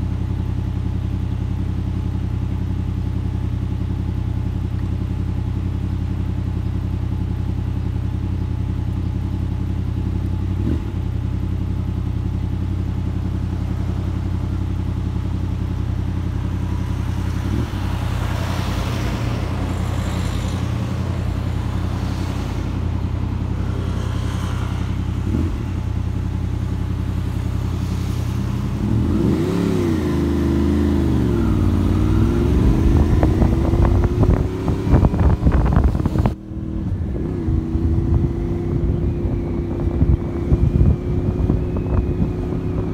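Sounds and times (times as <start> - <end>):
motorcycle engine idling: 0.0 - 29.0
motorcycle revving and accelerating: 7.1 - 42.9
vehicle passing by: 16.6 - 26.3, 27.1 - 42.9.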